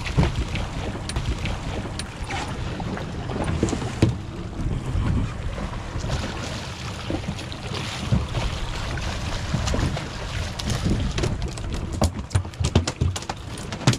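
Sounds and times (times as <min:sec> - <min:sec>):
wind buffeting microphone: 0:00.0 - 0:12.4
water washing against hull: 0:00.0 - 0:13.9
fish splashing: 0:05.9 - 0:11.3.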